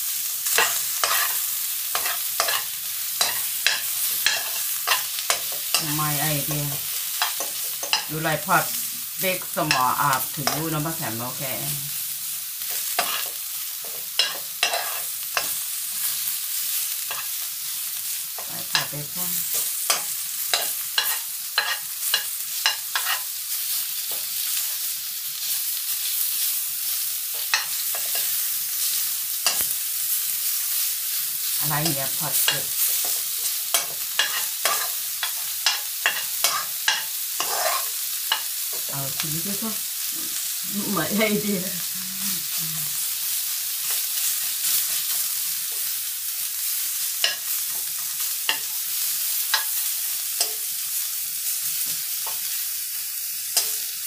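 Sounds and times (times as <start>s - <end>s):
meat sizzling in oil: 0.0s - 54.0s
metal spoon scraping a wok: 0.5s - 5.9s, 12.8s - 13.4s, 14.2s - 15.6s, 19.5s - 23.3s, 32.3s - 38.5s.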